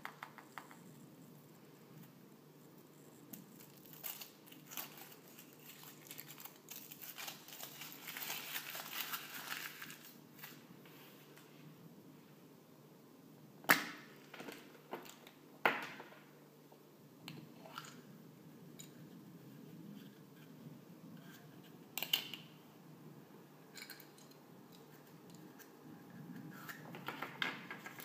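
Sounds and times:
chocolate pieces crackling: 3.3s - 10.6s.

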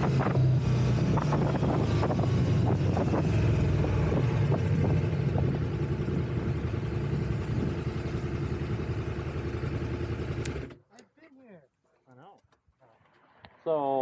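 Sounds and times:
motorcycle engine running: 0.0s - 10.8s.

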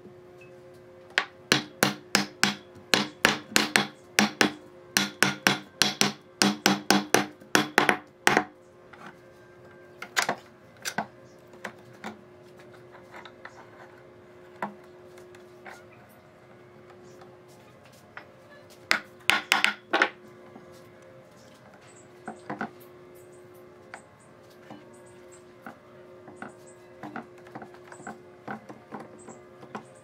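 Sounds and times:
hammer knocking on wooden boards: 1.2s - 8.5s, 18.9s - 20.1s.

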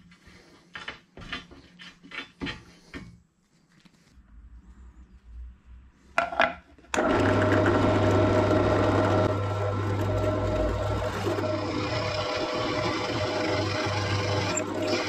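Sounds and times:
power tool humming: 7.0s - 15.0s.

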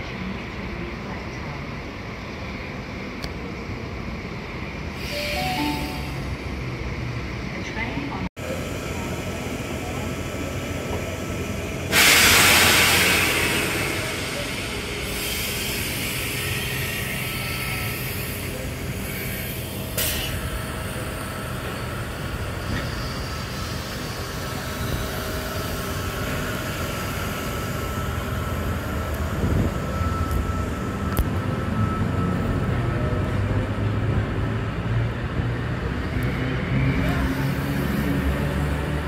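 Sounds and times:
train rumble and hum: 0.0s - 39.0s
loud train hiss: 4.3s - 6.4s, 8.5s - 29.8s.

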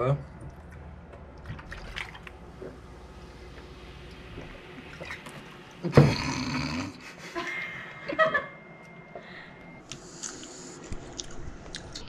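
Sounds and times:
man gulping from bottles: 5.8s - 7.0s.

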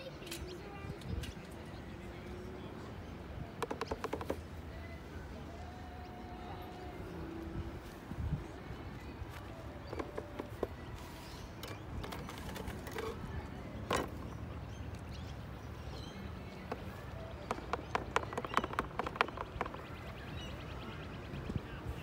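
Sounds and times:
palette knife tapping and scraping: 16.7s - 19.9s.

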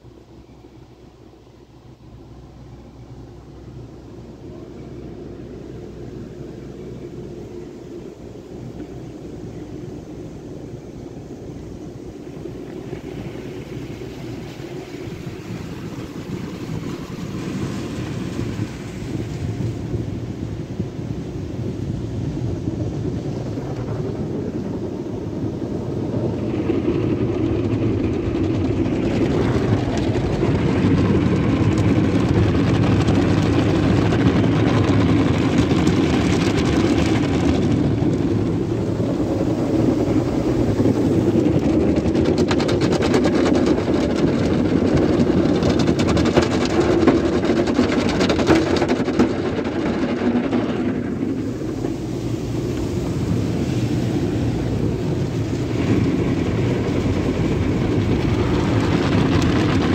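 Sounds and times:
water spray on car: 11.8s - 59.9s
fast patter of slaps: 41.4s - 51.4s.

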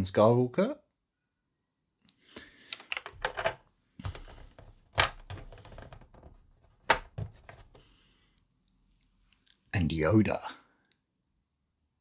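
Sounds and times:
plastic pieces clicking and knocking: 2.7s - 7.6s.

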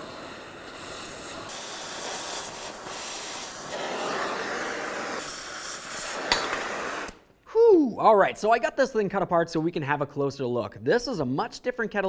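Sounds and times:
cutting torch hissing: 0.0s - 7.2s.

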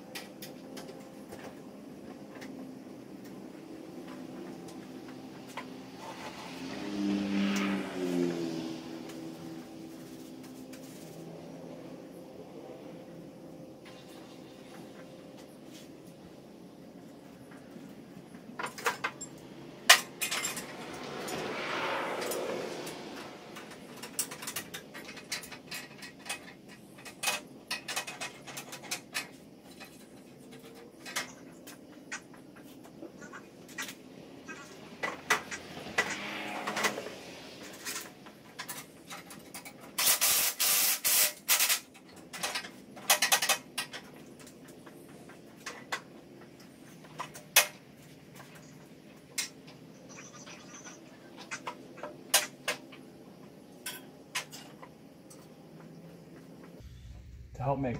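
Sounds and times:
metal tools clinking and clattering: 18.6s - 21.0s.

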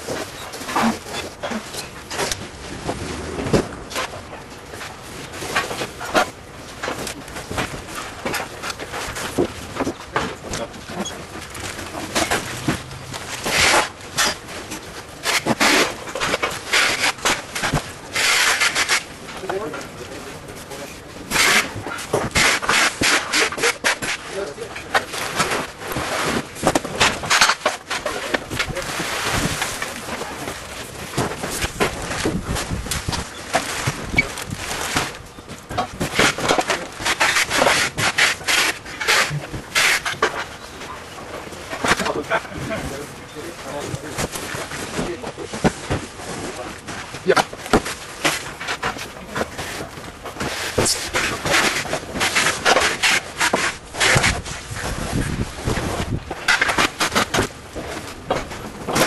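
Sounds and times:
furniture knocking and scraping: 0.0s - 6.4s.

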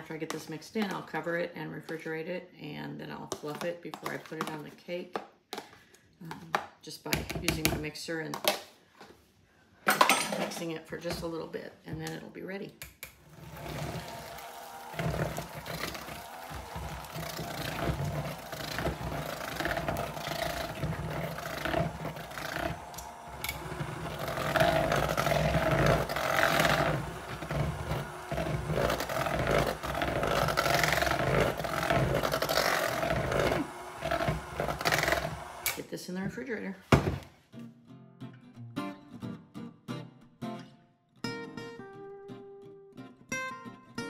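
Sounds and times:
electric hand mixer churning: 13.2s - 35.8s.

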